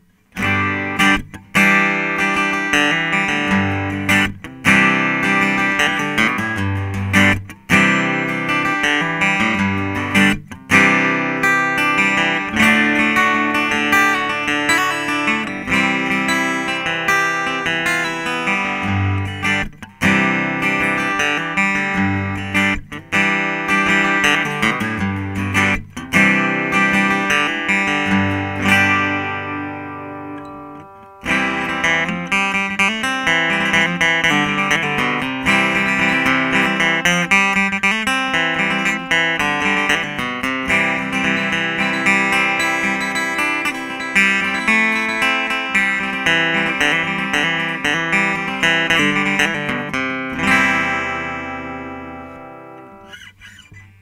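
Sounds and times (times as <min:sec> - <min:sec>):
acoustic guitar strumming chords: 0:00.0 - 0:54.0.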